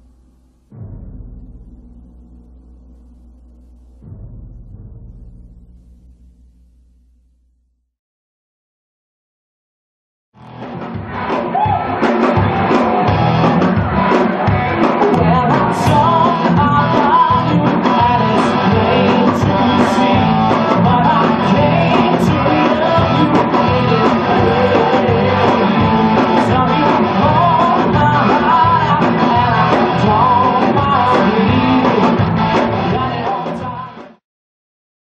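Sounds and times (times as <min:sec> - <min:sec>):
rock band with singer: 0:10.4 - 0:34.2.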